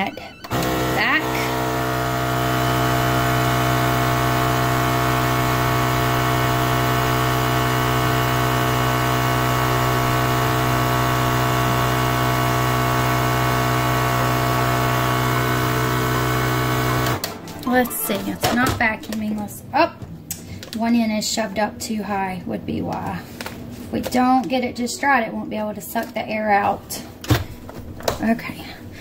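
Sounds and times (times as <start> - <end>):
vacuum sealer pump humming: 0.2 - 17.8.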